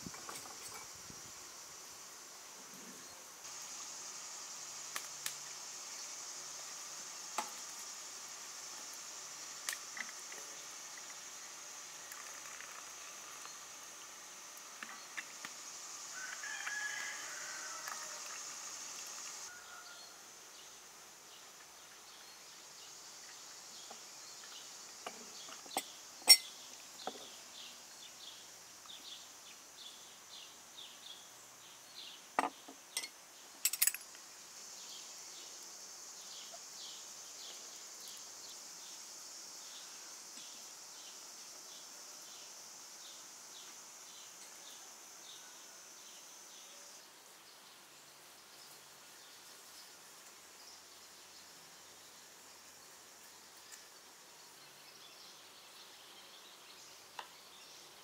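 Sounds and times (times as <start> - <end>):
insect drone: 0.0 - 58.0
sharp clinks: 26.2 - 26.5.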